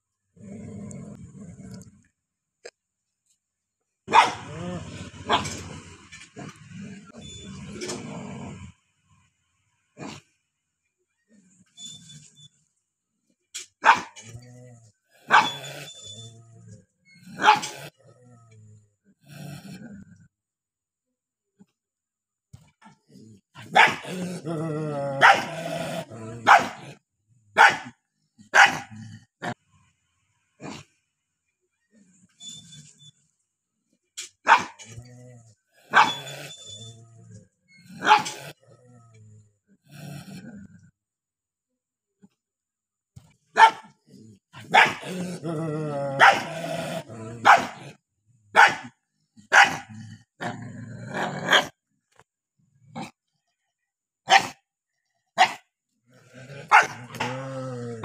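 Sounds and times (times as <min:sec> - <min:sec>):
dog growling: 0:00.4 - 0:02.0, 0:04.4 - 0:08.8, 0:17.6 - 0:20.3, 0:23.0 - 0:27.0, 0:34.8 - 0:40.9, 0:44.0 - 0:48.0, 0:49.8 - 0:51.7, 0:56.1 - 0:58.0
dog barking angrily: 0:04.1 - 0:04.6, 0:05.2 - 0:05.7, 0:13.8 - 0:14.2, 0:15.3 - 0:15.7, 0:17.4 - 0:17.8, 0:23.6 - 0:24.4, 0:25.2 - 0:27.0, 0:27.6 - 0:29.0, 0:34.4 - 0:34.8, 0:35.9 - 0:36.3, 0:38.0 - 0:38.4, 0:43.5 - 0:43.9, 0:44.6 - 0:45.4, 0:46.1 - 0:46.8, 0:47.4 - 0:47.9, 0:48.5 - 0:50.0, 0:51.2 - 0:51.7, 0:54.3 - 0:54.6, 0:55.4 - 0:55.6, 0:56.5 - 0:57.5.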